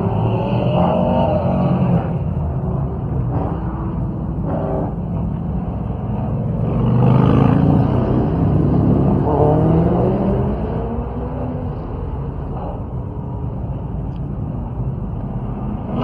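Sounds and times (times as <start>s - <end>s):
car engine revving: 6.2s - 12.8s.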